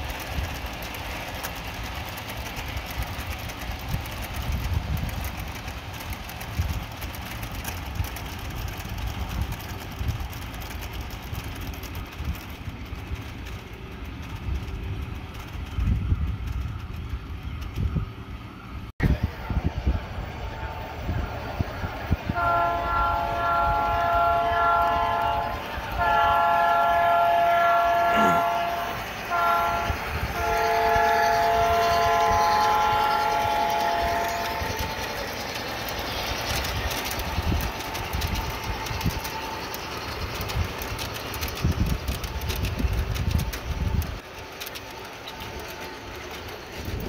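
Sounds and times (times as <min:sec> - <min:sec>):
train cars clicking over rail joints: 0:00.0 - 0:18.8, 0:21.1 - 0:47.0
model train horn: 0:20.4 - 0:21.2, 0:22.3 - 0:34.9.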